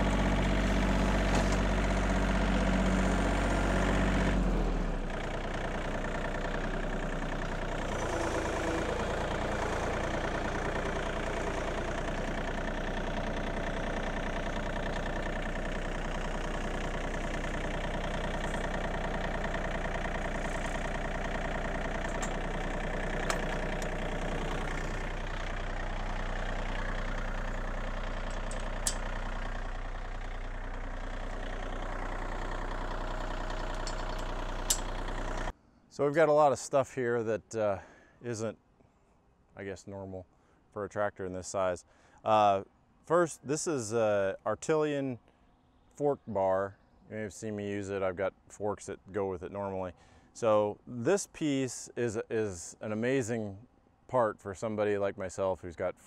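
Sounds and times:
tractor diesel engine idling: 0.0s - 35.6s.

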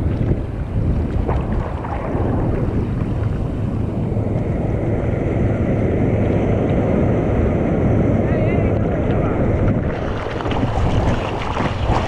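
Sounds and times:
sea water sloshing: 0.0s - 4.1s, 9.7s - 12.0s
wind rumble on microphone: 0.0s - 12.0s.

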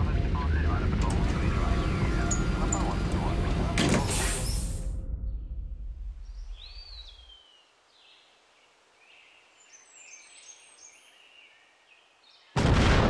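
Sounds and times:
low rumble: 0.0s - 7.3s.

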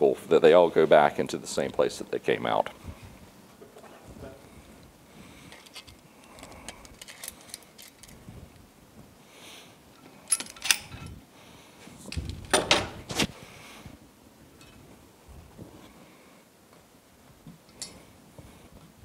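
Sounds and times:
light metal clicks and clinks: 10.2s - 11.2s, 17.7s - 18.1s.

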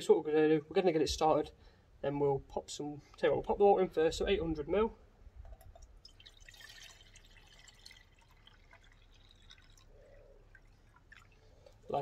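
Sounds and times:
water dripping: 5.4s - 12.0s
water pouring into metal pot: 5.7s - 12.0s.

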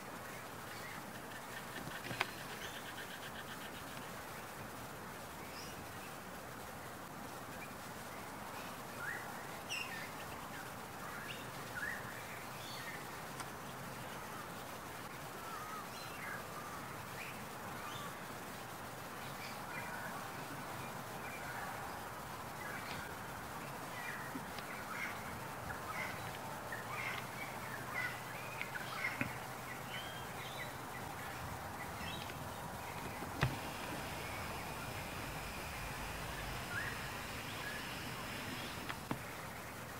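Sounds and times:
outdoor hiss: 0.0s - 39.9s
bird calls: 0.7s - 4.1s, 24.1s - 39.6s
steady rushing noise: 30.8s - 39.9s
rising bird calls: 31.8s - 39.2s.

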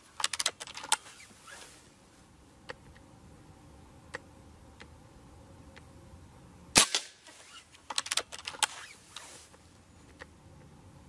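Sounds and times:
metallic cocking lever clicks: 0.2s - 1.0s, 7.9s - 8.7s
air rifle shot: 6.8s - 7.2s.

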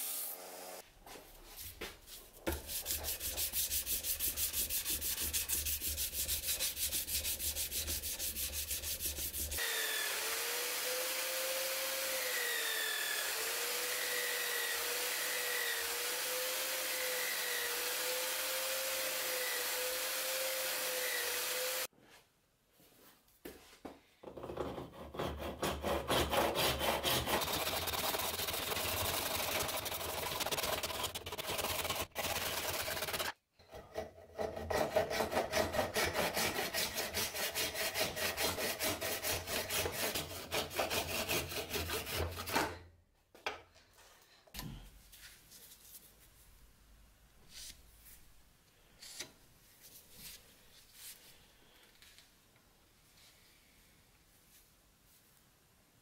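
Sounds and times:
hand file rasping on steel: 2.5s - 9.6s, 24.9s - 42.8s
hand saw cutting wood: 2.5s - 21.9s, 24.6s - 42.8s
sanding wheel whine: 3.1s - 21.9s, 27.3s - 33.4s.

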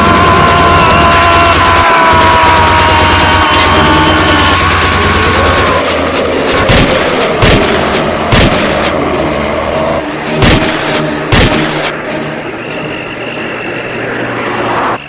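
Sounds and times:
pistol gunshots: 6.6s - 8.9s, 10.4s - 11.9s.

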